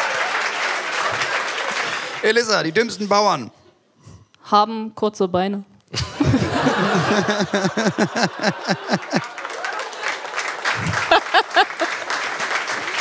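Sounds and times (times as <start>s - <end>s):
audience clapping: 0.0s - 2.7s, 6.2s - 13.0s
audience laughing: 6.0s - 12.2s.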